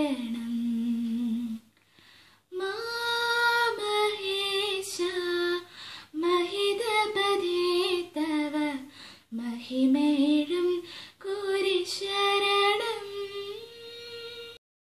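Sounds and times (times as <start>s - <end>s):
woman singing unaccompanied: 0.0s - 1.7s, 2.5s - 14.6s.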